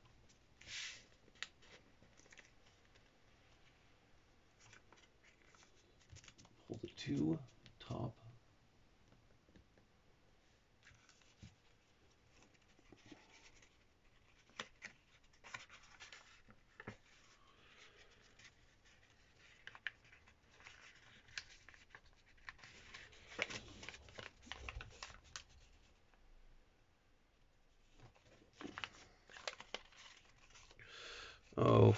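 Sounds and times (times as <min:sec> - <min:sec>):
paper being folded and crinkled: 0:00.6 - 0:03.1, 0:04.6 - 0:06.6, 0:10.8 - 0:26.0, 0:27.8 - 0:30.8.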